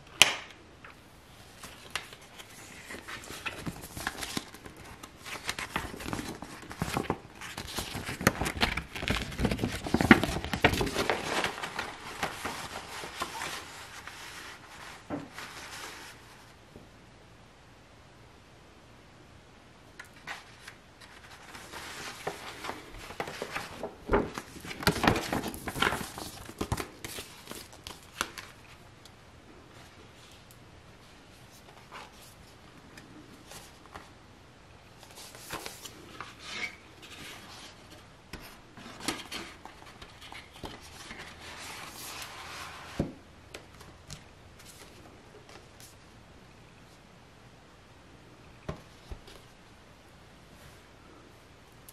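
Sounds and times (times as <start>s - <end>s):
paper and cardboard rustling: 1.5s - 16.6s, 20.2s - 28.8s, 35.0s - 46.0s.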